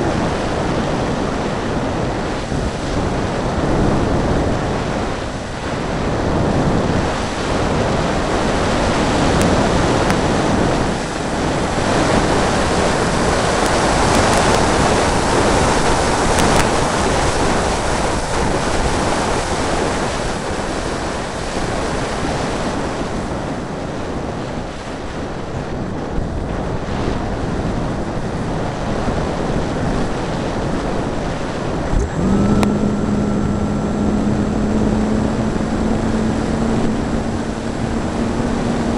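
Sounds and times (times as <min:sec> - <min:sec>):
wind rushing over glider: 0:00.0 - 0:38.9
electric motor and propeller hum: 0:31.1 - 0:38.9.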